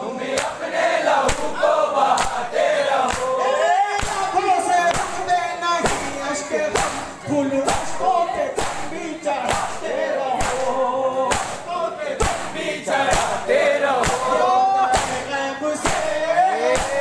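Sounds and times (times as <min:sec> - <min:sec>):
crowd singing along: 0:00.0 - 0:17.0
hands slapping chests: 0:00.3 - 0:00.6, 0:01.2 - 0:03.4, 0:04.0 - 0:04.3, 0:04.9 - 0:05.2, 0:05.8 - 0:07.1, 0:08.6 - 0:13.4, 0:14.0 - 0:17.0
man singing lament through pa: 0:13.8 - 0:17.0.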